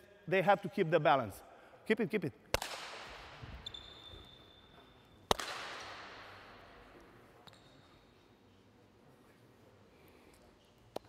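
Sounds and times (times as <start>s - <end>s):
sharp echoing smack: 2.5s - 3.4s, 5.3s - 6.6s.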